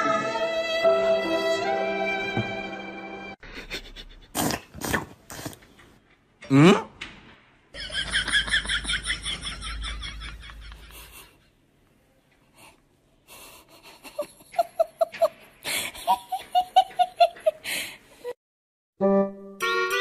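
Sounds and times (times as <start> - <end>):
person laughing: 7.9 - 11.5, 13.4 - 17.7.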